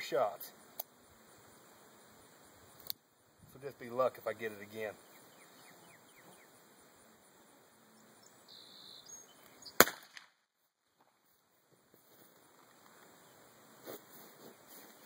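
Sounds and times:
revolver shot: 9.8s - 10.3s.

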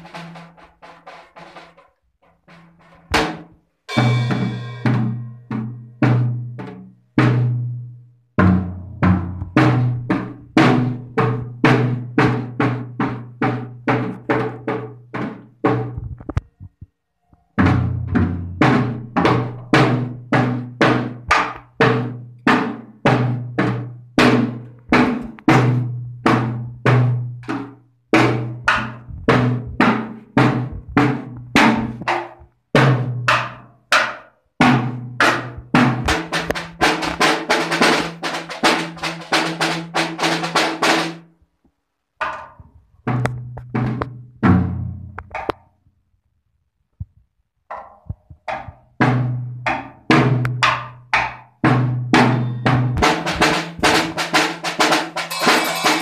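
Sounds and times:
child hitting drum kit: 0.0s - 7.7s, 8.4s - 16.2s, 17.6s - 41.2s, 42.2s - 45.6s, 47.7s - 56.0s
cymbal crash: 3.9s - 5.4s, 55.3s - 56.0s.

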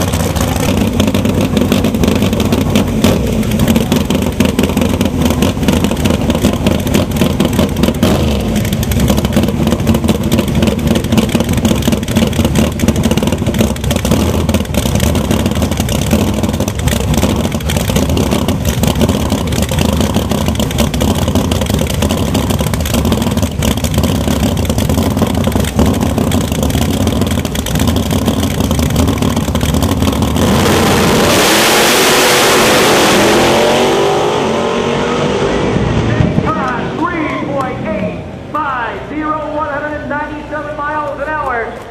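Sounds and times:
drag cars idling: 0.0s - 31.3s
drag cars accelerating: 0.0s - 38.5s.

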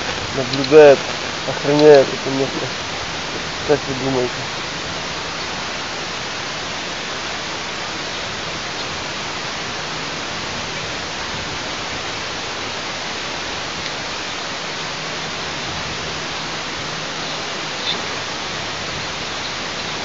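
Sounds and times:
steady hiss: 0.0s - 20.0s.

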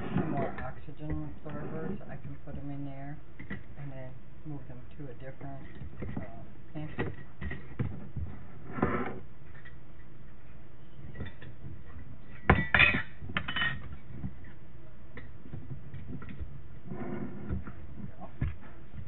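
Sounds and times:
glass jars and lids clinking: 12.5s - 13.9s.

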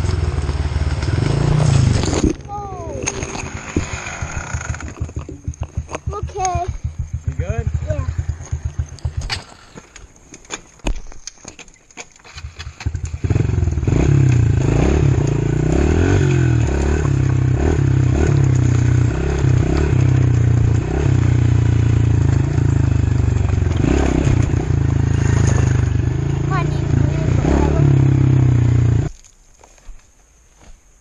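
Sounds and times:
dirt bike engine revving: 0.0s - 10.0s, 12.3s - 29.1s
knocks and rattles: 1.8s - 13.0s.

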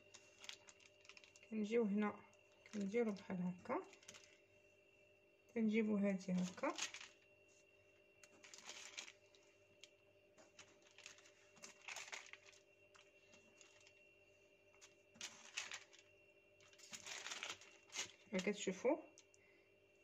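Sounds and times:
plastic sheet crinkling: 0.0s - 1.5s, 2.5s - 4.4s, 6.3s - 7.2s, 8.2s - 14.0s, 14.8s - 19.3s
faint steady hum: 0.0s - 20.0s.

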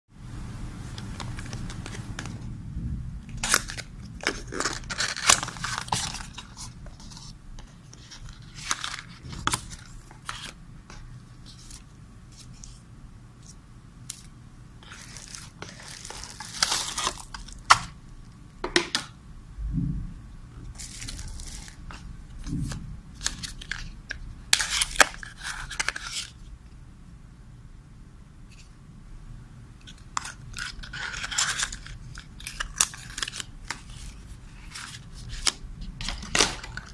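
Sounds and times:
faint low hum: 0.2s - 36.9s
cardboard and bubble wrap crinkling: 3.4s - 7.3s, 14.1s - 17.9s, 20.8s - 22.0s, 30.2s - 36.9s.

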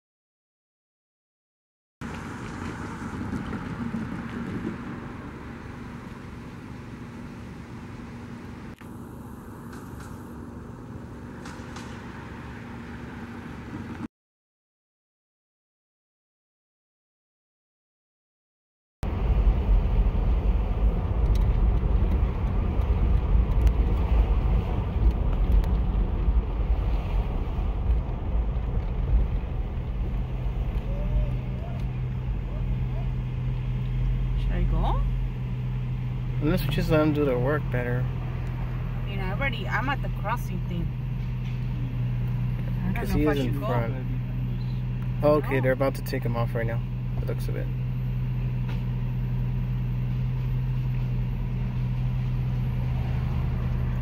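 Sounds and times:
low rumble: 19.0s - 54.0s.

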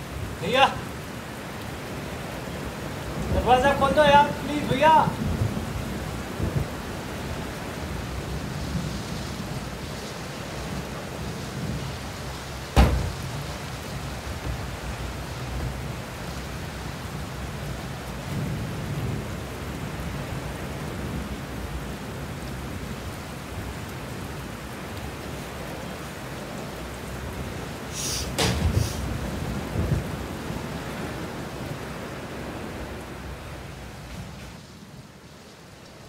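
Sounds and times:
steady rain: 0.0s - 36.0s
low thunder rumble: 5.1s - 9.8s, 28.4s - 30.6s
sharp thunder crack: 12.8s - 13.5s, 28.4s - 30.0s.

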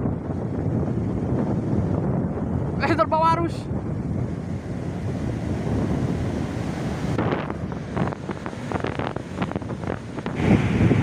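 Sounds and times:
wind buffeting microphone: 0.0s - 11.0s
surf breaking on beach: 3.9s - 11.0s.

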